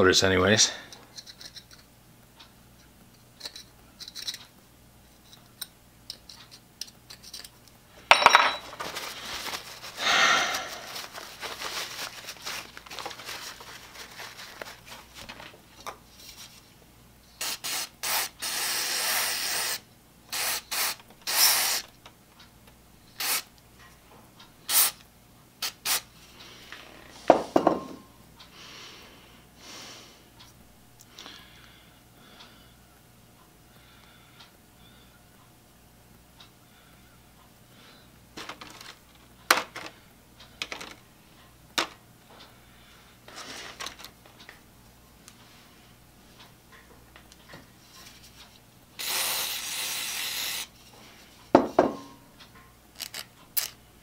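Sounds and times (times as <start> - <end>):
metal parts clicking and scraping: 1.1 - 1.9, 3.4 - 4.5, 5.2 - 9.0, 53.0 - 53.8
aerosol spray hissing: 17.4 - 21.8, 23.2 - 23.4, 49.0 - 50.7.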